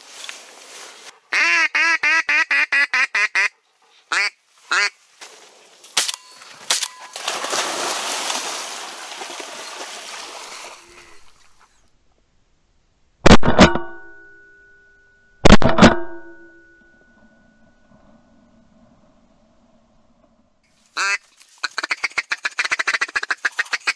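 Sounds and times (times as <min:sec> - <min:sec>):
duck quacking: 0:01.3 - 0:05.0, 0:21.0 - 0:23.9.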